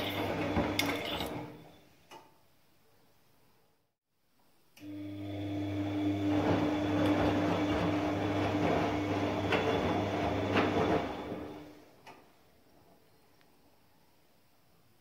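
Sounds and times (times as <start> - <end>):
washing machine motor hum: 0.0 - 1.6, 4.8 - 11.8.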